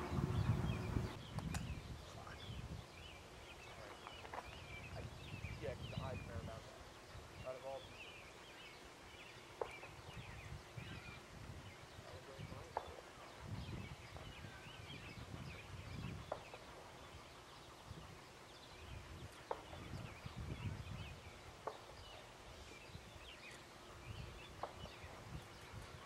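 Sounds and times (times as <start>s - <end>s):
low rumble: 0.0s - 1.2s
birds chirping: 0.0s - 26.0s.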